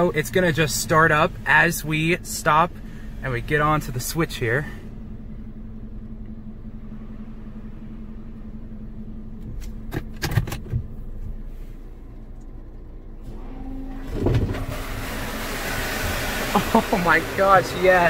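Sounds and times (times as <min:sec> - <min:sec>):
machine hum: 0:00.0 - 0:18.0
clunks: 0:09.3 - 0:14.8
hiss of water spray: 0:14.7 - 0:18.0.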